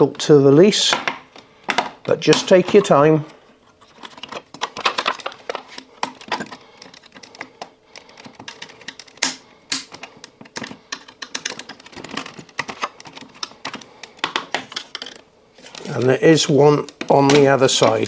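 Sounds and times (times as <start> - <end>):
hard plastic clicking and tapping: 4.0 - 15.9, 16.8 - 18.0.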